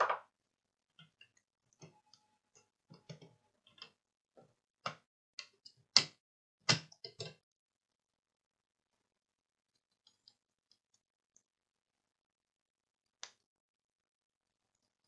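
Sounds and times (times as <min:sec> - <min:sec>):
fingers clicking and tapping circuit board: 0:04.8 - 0:07.4.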